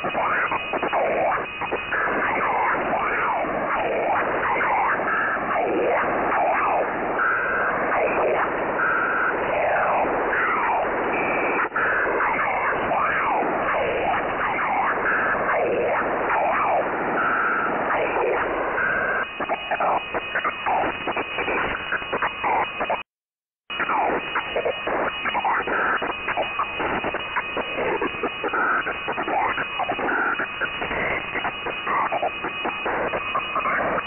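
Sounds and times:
radio static: 0.0s - 34.0s
swirling sweeping radio tones: 7.5s - 23.0s, 23.7s - 34.0s.

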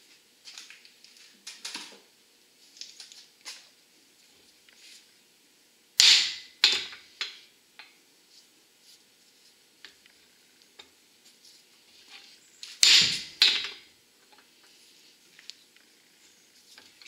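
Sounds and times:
hammer striking steel: 6.0s - 6.9s.

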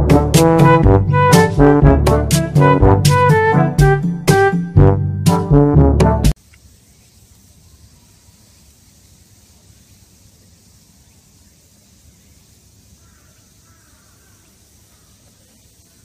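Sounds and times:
low outdoor hiss and rumble: 6.4s - 16.0s.

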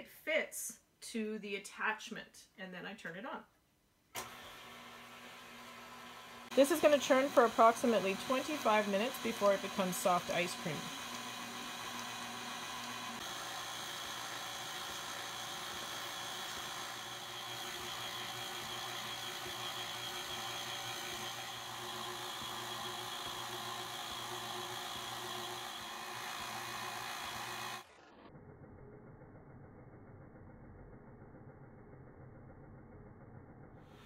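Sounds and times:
stand mixer motor running: 4.2s - 28.3s.

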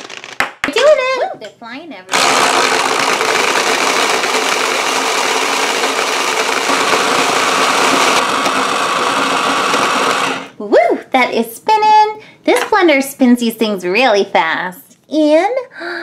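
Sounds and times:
gumballs rattling in plastic jar: 0.0s - 0.8s
small electric motor running: 2.1s - 10.5s.

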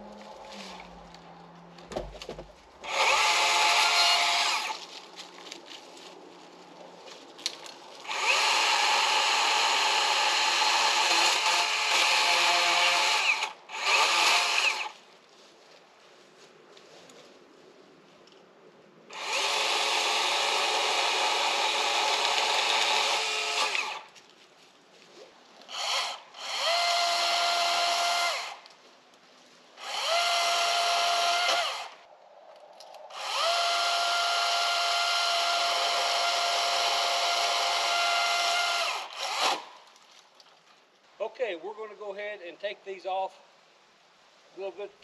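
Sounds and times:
electric chainsaw whining: 2.8s - 4.8s, 8.0s - 15.0s, 19.1s - 24.1s, 25.7s - 28.6s, 29.8s - 32.0s, 33.1s - 39.7s.

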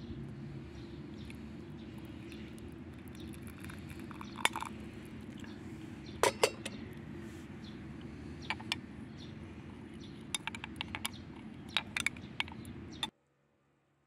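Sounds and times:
low background noise: 0.0s - 14.0s
glass clinking: 3.6s - 4.7s, 6.2s - 6.8s.

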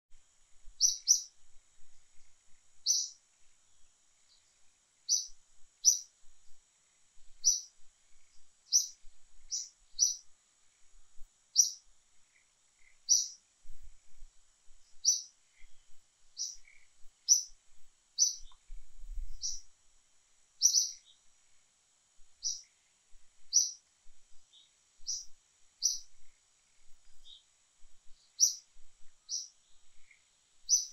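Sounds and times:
faint high hiss: 0.1s - 30.9s
bird chirping: 0.8s - 1.4s, 2.1s - 6.6s, 7.3s - 10.3s, 11.5s - 13.8s, 14.8s - 17.6s, 18.2s - 19.7s, 20.6s - 21.3s, 22.4s - 22.8s, 23.4s - 30.9s.

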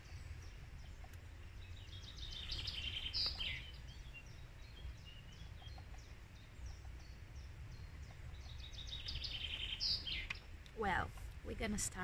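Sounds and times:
songbirds chirping and trilling: 0.0s - 12.0s
steady low rumble: 0.0s - 12.0s.

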